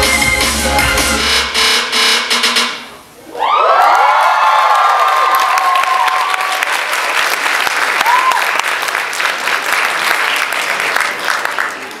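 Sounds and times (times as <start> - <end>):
short cheer: 3.2 - 6.7, 8.0 - 8.6
audience applauding: 3.7 - 12.0.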